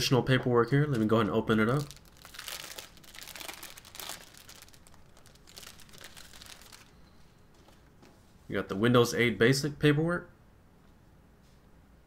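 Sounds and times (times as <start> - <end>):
plastic sleeve crinkling: 0.7 - 7.0.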